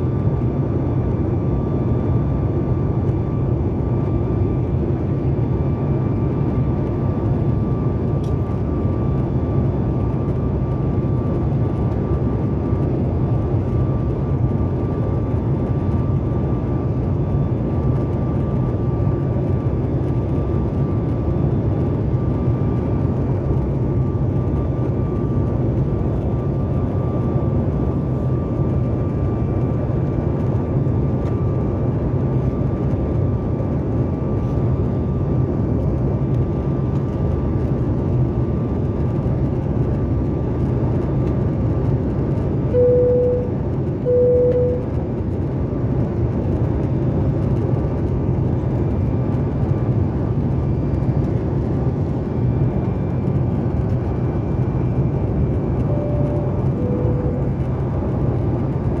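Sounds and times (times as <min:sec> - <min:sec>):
deep rumble of engine and airflow: 0:00.0 - 0:59.0
thin steady whine: 0:42.6 - 0:45.4, 0:51.1 - 0:59.0.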